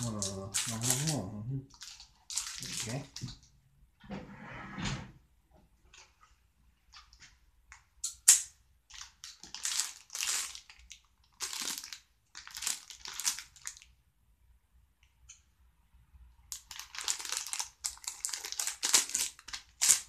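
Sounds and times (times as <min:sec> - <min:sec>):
plastic bag crinkling: 0:00.0 - 0:03.4, 0:08.9 - 0:13.9, 0:16.5 - 0:20.0.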